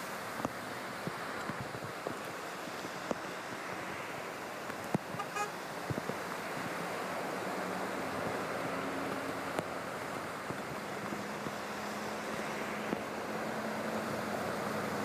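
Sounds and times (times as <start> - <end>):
heavy rain: 0.0 - 15.0
vehicles driving through floodwater: 0.0 - 15.0
car horn toot: 5.2 - 5.6.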